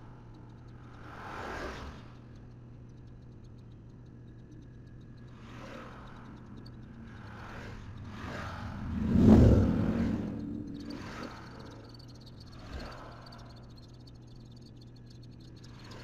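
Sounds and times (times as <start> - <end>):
insects chirping: 0.0 - 16.0
steady low hum: 0.0 - 16.0
vehicles whooshing past: 6.9 - 13.6.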